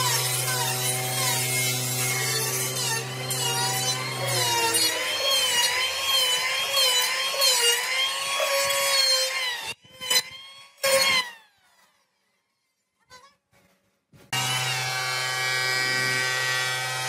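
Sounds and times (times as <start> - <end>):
electric hand planer on wood: 0.0 - 9.8, 14.4 - 17.0.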